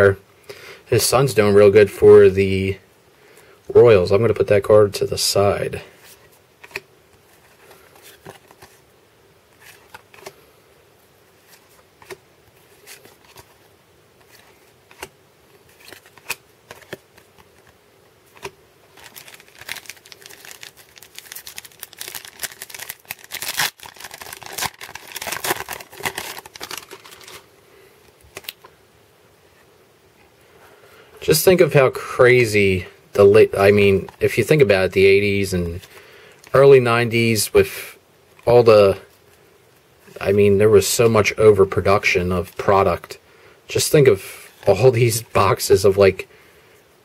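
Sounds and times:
cards sliding: 9.6 - 10.4, 14.2 - 27.4
foil wrapper crinkling and tearing: 18.3 - 27.5.

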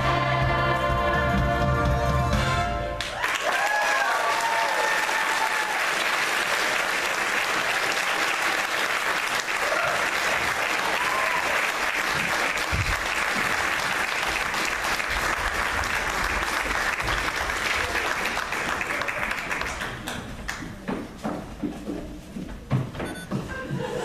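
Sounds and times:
audience applauding: 3.0 - 20.6
people whooping: 3.1 - 6.0, 9.6 - 10.2, 10.8 - 11.7.

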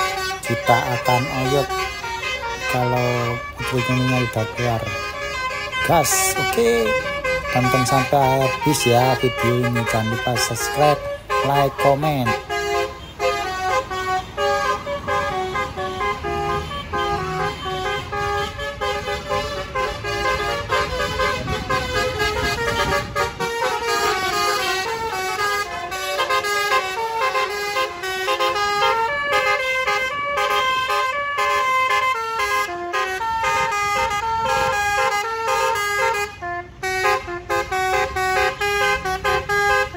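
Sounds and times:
bus engine rumble: 0.0 - 39.9
multi-tone bus horn melody: 0.0 - 39.9.

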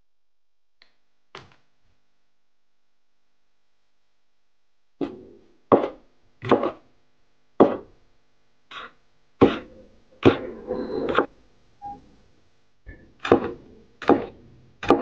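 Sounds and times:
knife chopping on cutting board: 5.0 - 6.8, 7.6 - 7.9, 8.7 - 10.4, 13.2 - 15.0.

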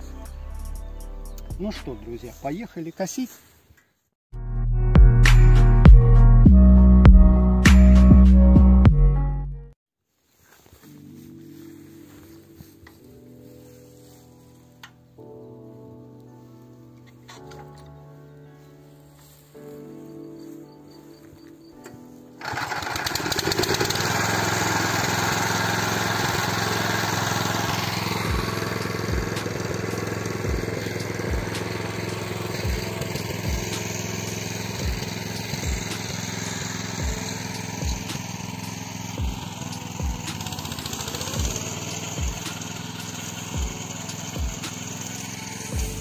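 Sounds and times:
background music with slow beat: 0.0 - 2.2, 4.4 - 9.8, 10.5 - 22.4, 27.9 - 46.0
walk-behind tractor mower running: 22.4 - 46.0.

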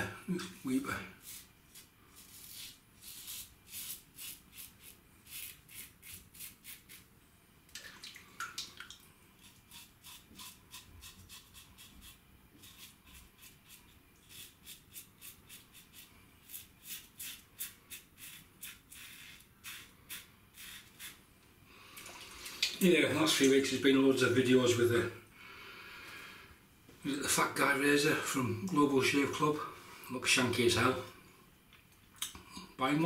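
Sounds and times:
razor scraping stubble: 1.2 - 7.0, 9.4 - 21.2.

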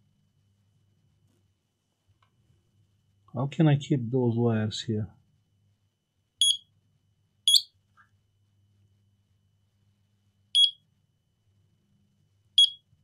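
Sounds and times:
short high buzzer beeps: 10.6 - 10.8.

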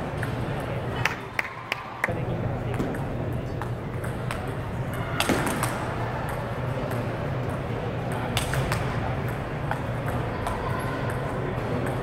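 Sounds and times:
faint ball clicks from other tables: 5.2 - 11.2.

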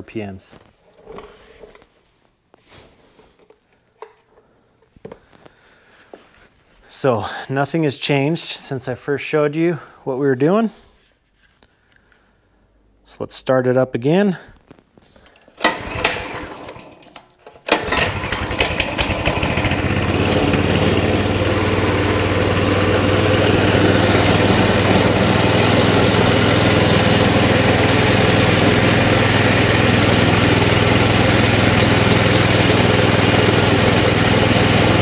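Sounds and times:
mini bike engine idling fast: 15.7 - 16.8, 17.7 - 35.0.

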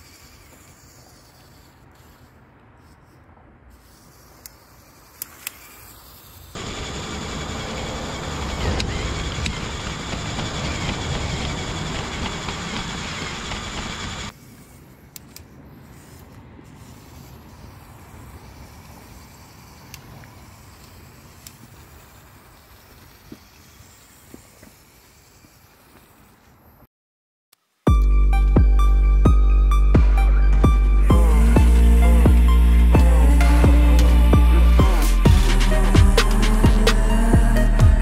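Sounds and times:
toy motor and gears whirring: 0.0 - 26.9, 31.0 - 38.0
wheels rumbling over rough road: 6.6 - 14.3.

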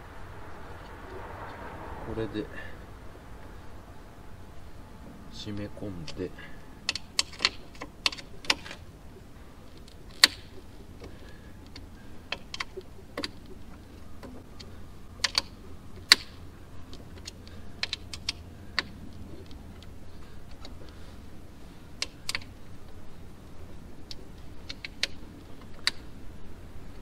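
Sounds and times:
low steady hum: 0.0 - 27.0
hex key clicking and tapping: 6.9 - 8.8, 14.2 - 19.9.

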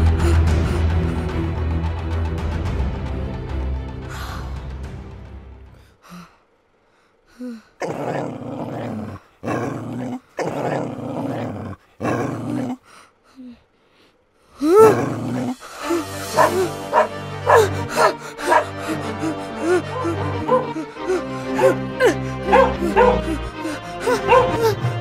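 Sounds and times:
dramatic music: 0.0 - 5.8, 14.8 - 25.0
dogs growling and barking: 7.8 - 12.9, 14.7 - 25.0
rising-and-falling cry: 14.6 - 24.8.

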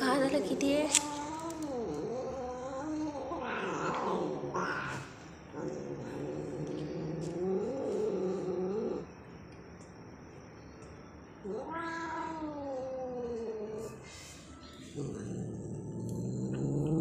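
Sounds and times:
cat yowling: 11.4 - 14.0.

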